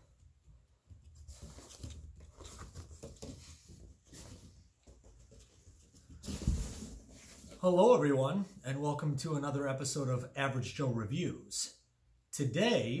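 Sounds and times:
cardboard box rustling and scraping: 6.1s - 7.6s.

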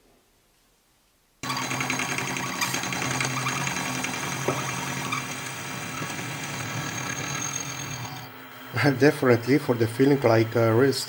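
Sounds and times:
milling machine motor hum: 1.4s - 9.0s.

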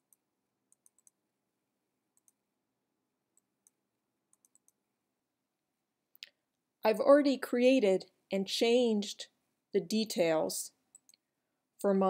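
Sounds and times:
computer mouse clicks: 0.0s - 1.2s, 2.2s - 2.4s, 3.4s - 4.8s, 10.9s - 11.2s.

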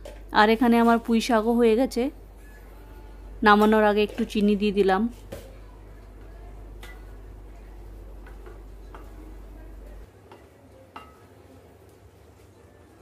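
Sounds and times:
low steady hum: 0.0s - 10.1s.

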